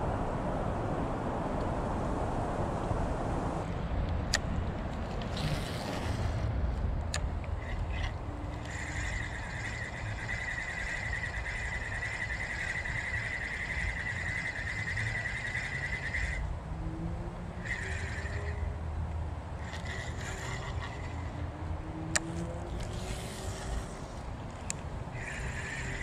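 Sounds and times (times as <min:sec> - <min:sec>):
low rumble of wind: 0:00.0 - 0:26.0
fishing reel whirring: 0:05.3 - 0:06.4, 0:07.4 - 0:16.5, 0:17.4 - 0:18.8, 0:19.5 - 0:26.0.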